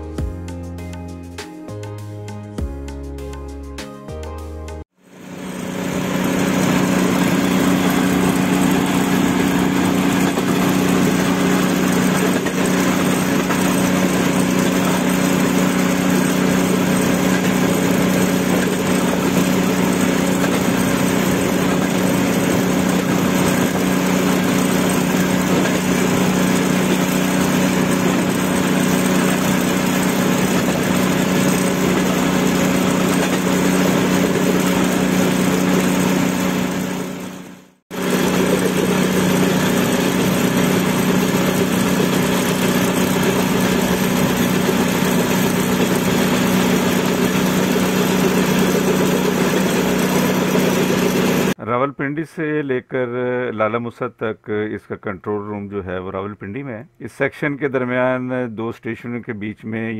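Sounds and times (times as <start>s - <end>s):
engine drone: 5.0s - 51.6s
trolley rushing along track: 5.4s - 37.4s, 38.0s - 51.5s.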